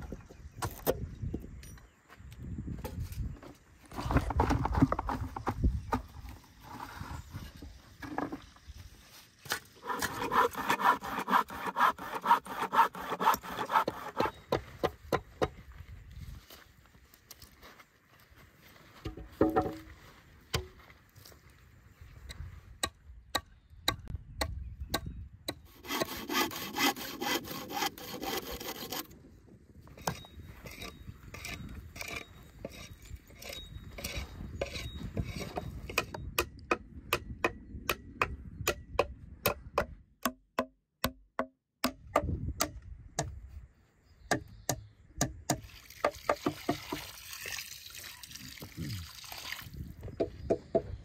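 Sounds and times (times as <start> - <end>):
hammer striking wood: 36.0 - 43.3.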